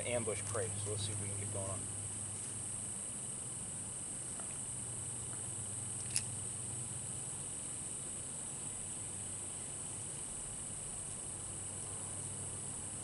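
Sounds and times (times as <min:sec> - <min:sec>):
insect chorus drone: 0:00.0 - 0:13.0
sharp click: 0:06.0 - 0:06.3.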